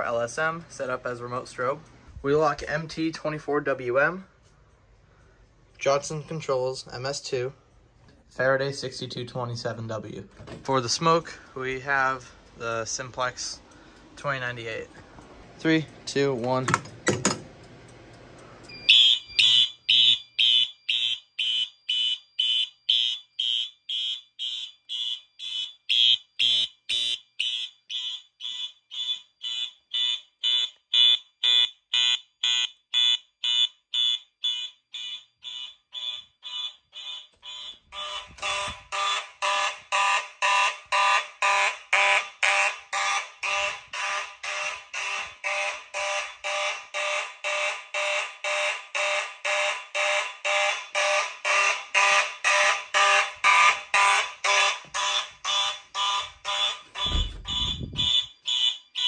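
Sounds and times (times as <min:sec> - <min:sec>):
pulsing fire alarm horns: 0:18.7 - 0:59.0.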